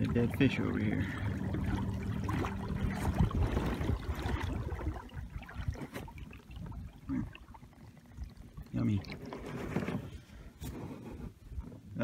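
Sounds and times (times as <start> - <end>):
steady low hum: 0.0 - 9.2
water splashing along a hull: 0.0 - 12.0.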